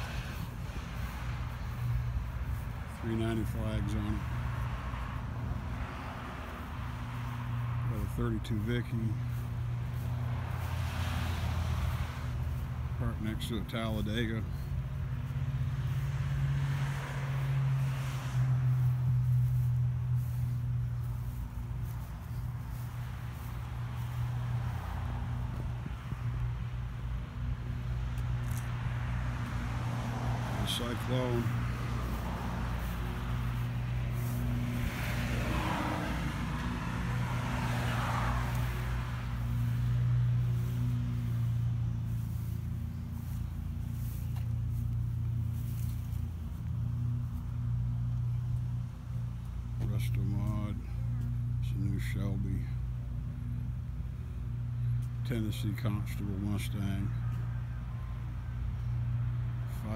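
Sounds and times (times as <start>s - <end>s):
outdoor background noise: 0.0s - 59.9s
car engine idling: 38.4s - 52.6s.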